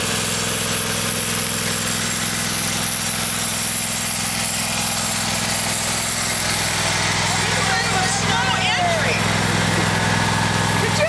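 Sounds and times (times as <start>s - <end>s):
riding mower engine running: 0.0s - 11.0s.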